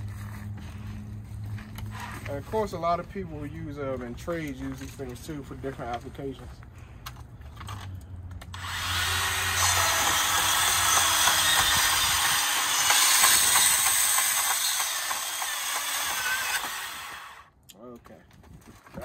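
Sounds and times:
band saw cutting metal: 8.5s - 17.5s
motor hum: 8.5s - 17.5s.

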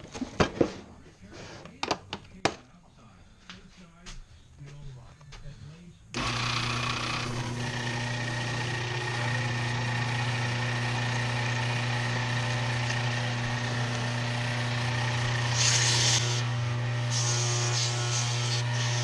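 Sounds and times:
wood lathe hum and hiss: 6.2s - 19.0s.

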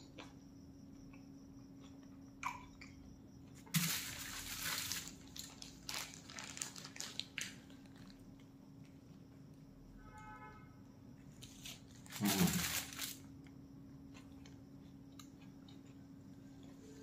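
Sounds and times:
paper and foil wrapping crinkling: 3.7s - 8.2s, 11.4s - 13.2s.

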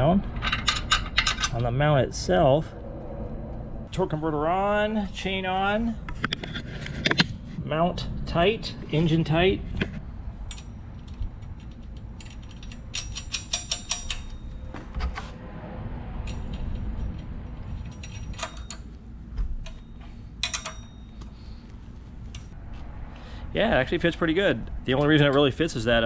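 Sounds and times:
ratchet wrench clicking: 10.5s - 14.4s.

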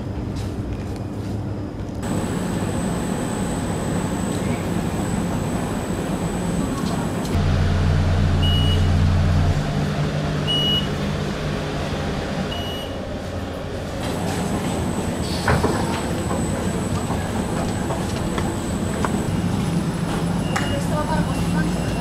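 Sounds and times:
tram arriving and stopping: 0.0s - 22.0s
high steady whine: 2.0s - 14.0s
deep steady hum: 7.2s - 14.0s
short high beeps: 8.4s - 9.0s, 12.5s - 13.0s.

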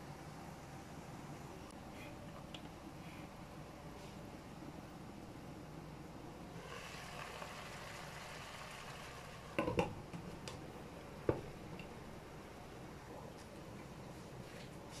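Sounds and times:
simmering pan hiss: 6.4s - 13.2s.

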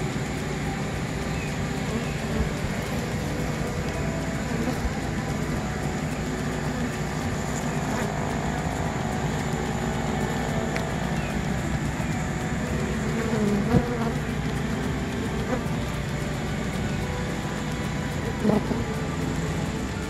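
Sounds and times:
bee colony buzzing: 0.0s - 20.0s.

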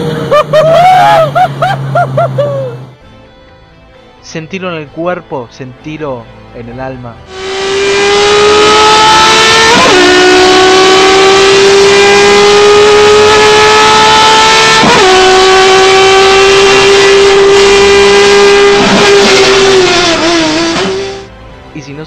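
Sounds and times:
race car engine at full throttle: 0.0s - 3.0s, 7.2s - 21.7s.

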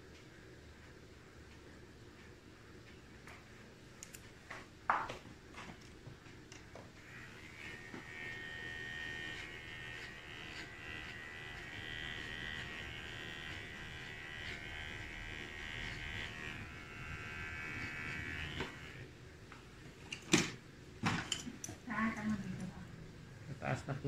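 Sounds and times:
electric hair clipper buzzing: 7.0s - 19.1s.

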